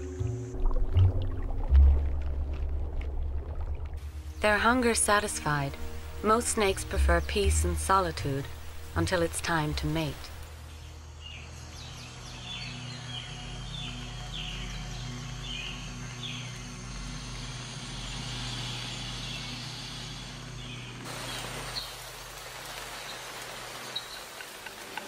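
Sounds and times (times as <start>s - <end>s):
rain hissing: 2.3s - 10.7s, 17.4s - 25.0s.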